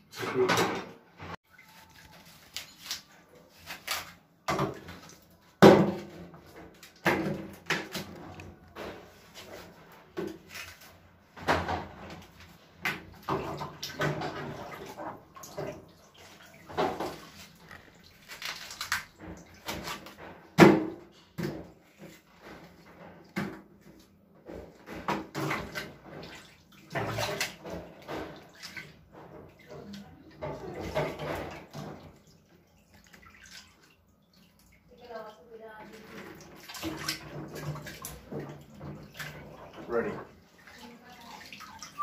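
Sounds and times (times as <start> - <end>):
water splashing: 1.4 - 20.8, 24.8 - 42.0.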